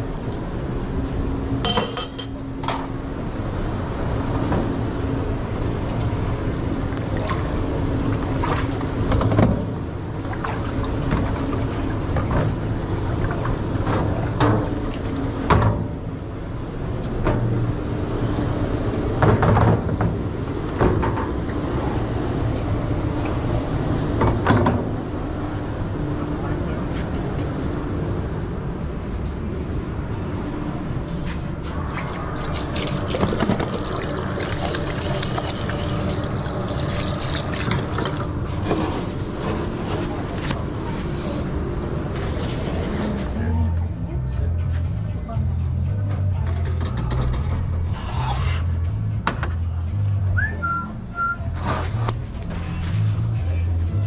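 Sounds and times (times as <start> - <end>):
steady background rumble: 0.0 - 54.0
dishes knocking and clinking: 1.6 - 2.9.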